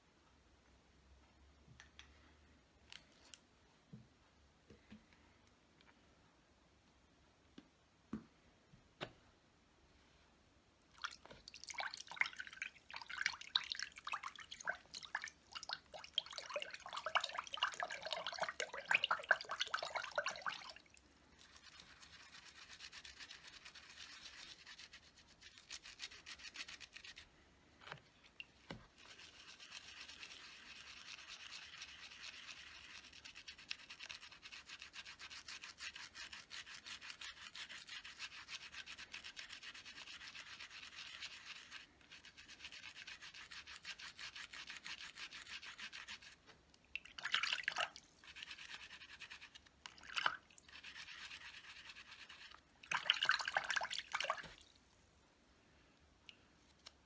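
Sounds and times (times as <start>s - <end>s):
brush bristles scrubbing a pad: 11.8s - 27.3s, 28.7s - 46.5s, 48.2s - 49.7s, 50.6s - 53.6s.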